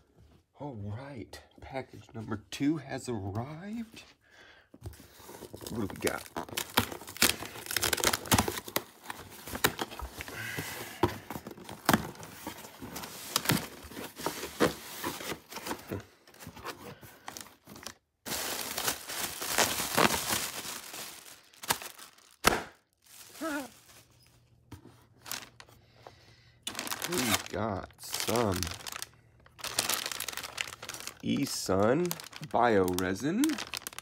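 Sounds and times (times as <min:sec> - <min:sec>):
cardboard and plastic packaging rustling: 0:04.8 - 0:34.0
packing tape peeling and tearing: 0:05.7 - 0:10.5, 0:18.5 - 0:22.6.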